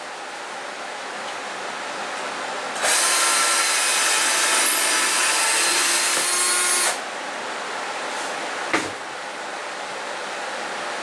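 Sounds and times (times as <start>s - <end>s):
electric drill boring into wood: 2.8s - 7.0s.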